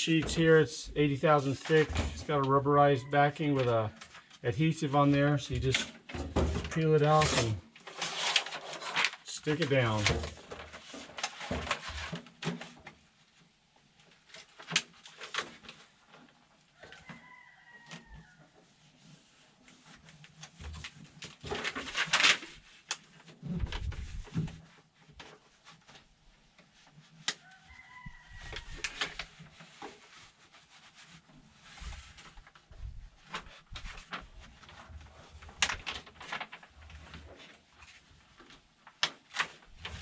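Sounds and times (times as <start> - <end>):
backing paper crinkling and rustling: 0.1 - 13.2, 14.0 - 40.0
paper tearing rustle: 6.7 - 12.8, 19.0 - 26.1, 28.4 - 40.0.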